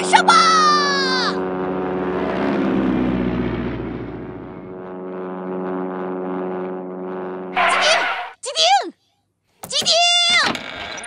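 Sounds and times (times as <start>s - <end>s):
cartoon whoosh: 7.6s - 8.4s.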